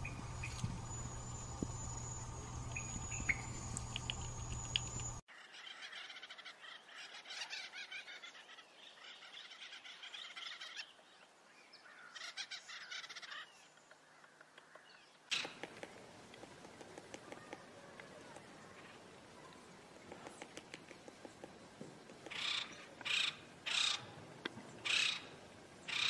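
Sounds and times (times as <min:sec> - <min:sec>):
steady low hum: 0:00.0 - 0:05.2
woodpeckers chattering: 0:00.0 - 0:08.2, 0:12.2 - 0:26.0
sharp clicks: 0:02.7 - 0:05.2, 0:15.3 - 0:18.5, 0:20.1 - 0:22.7.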